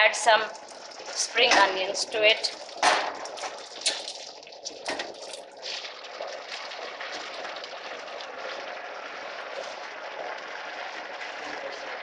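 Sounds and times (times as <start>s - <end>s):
food sizzling in pot: 0.0s - 7.5s.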